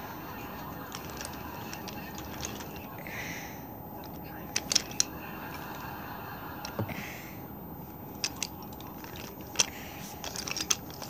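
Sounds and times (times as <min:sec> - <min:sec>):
toy train cars rolling on track: 0:00.0 - 0:02.9, 0:04.0 - 0:06.8, 0:08.1 - 0:11.0.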